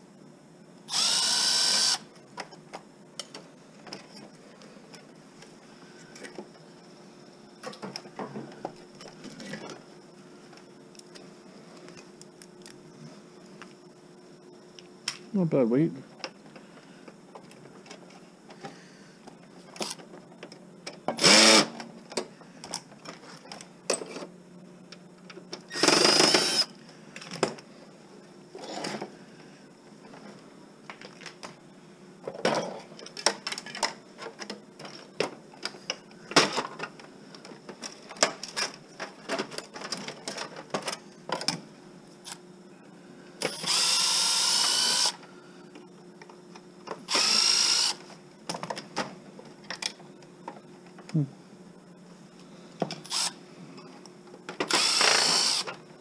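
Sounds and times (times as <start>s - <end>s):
cordless drill whirring: 0.9s - 2.1s, 21.2s - 21.7s, 25.7s - 26.7s, 43.5s - 45.2s, 47.1s - 48.0s, 53.1s - 53.4s, 54.7s - 55.7s.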